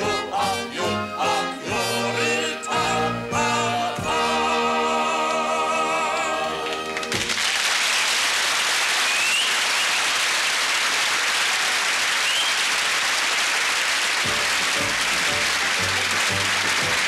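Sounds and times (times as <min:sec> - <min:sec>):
audience applauding: 0:06.6 - 0:17.0.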